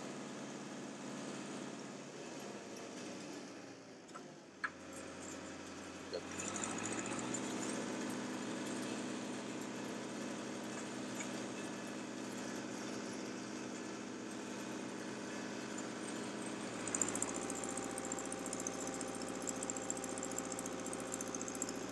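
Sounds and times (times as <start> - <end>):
drill rig engine running: 4.8 - 21.9.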